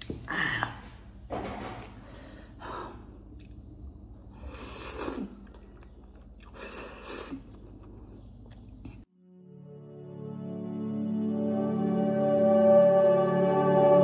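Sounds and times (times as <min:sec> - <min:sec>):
person slurping noodles: 0:04.5 - 0:05.5
person chewing: 0:04.5 - 0:09.1.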